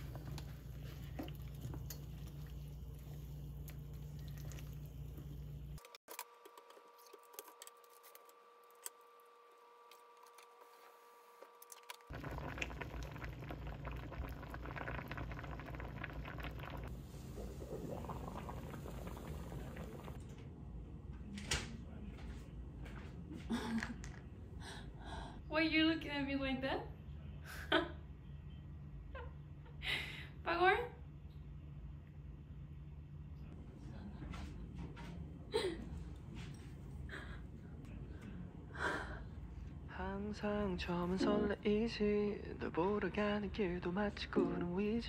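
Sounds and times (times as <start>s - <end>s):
broth bubbling in a pot: 11.8s - 20.2s.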